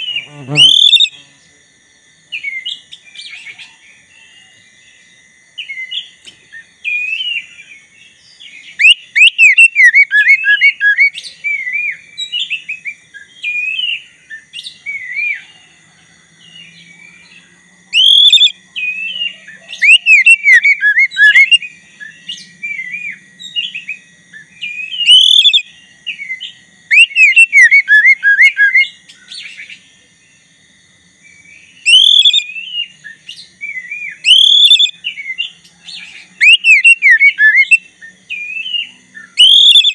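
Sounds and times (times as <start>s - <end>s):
bird singing whistled phrases: 0.0s - 1.2s, 8.7s - 15.4s, 17.9s - 29.6s, 31.3s - 39.9s
soft bird twittering: 0.0s - 1.2s, 16.5s - 30.4s, 31.3s - 39.9s.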